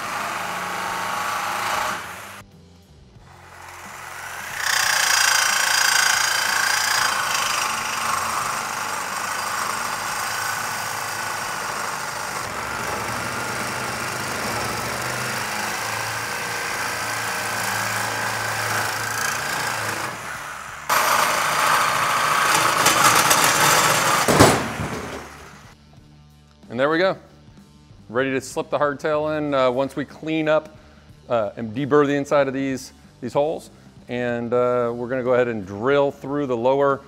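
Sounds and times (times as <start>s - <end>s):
reciprocating saw cutting metal: 0.0s - 2.4s, 3.3s - 25.7s.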